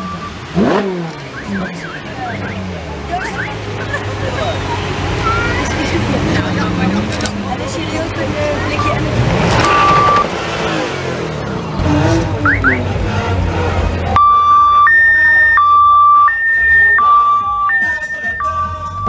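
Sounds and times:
crowd noise: 0.0 - 19.0
two-tone siren: 14.2 - 19.0.

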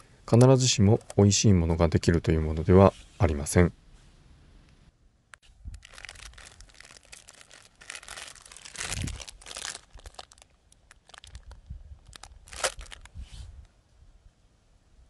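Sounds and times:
plastic bag crinkling: 5.7 - 13.2.

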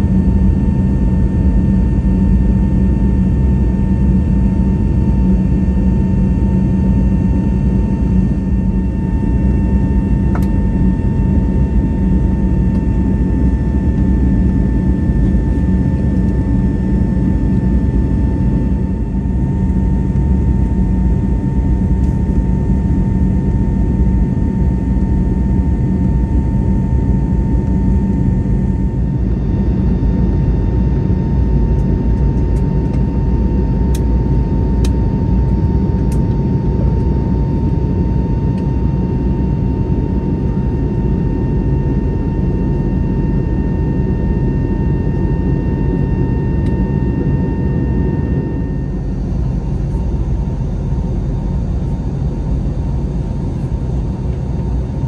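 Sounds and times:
airflow and jet engine rumble: 0.0 - 55.0.

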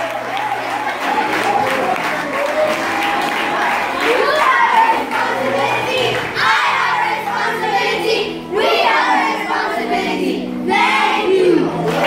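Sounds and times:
music with held notes: 0.0 - 12.0
children singing and shouting: 3.2 - 12.0.

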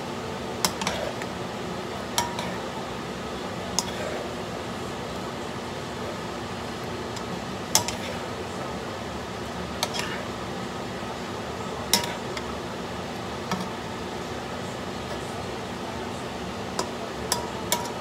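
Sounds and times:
metal spoon clinking on wok: 2.2 - 2.6, 11.9 - 12.2, 16.8 - 18.0.

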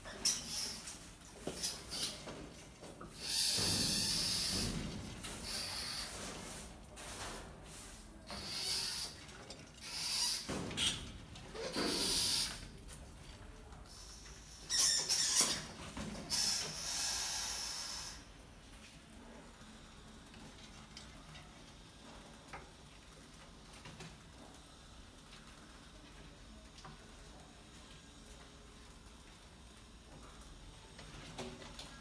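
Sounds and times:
mice squeaking and scrabbling: 0.0 - 18.2.

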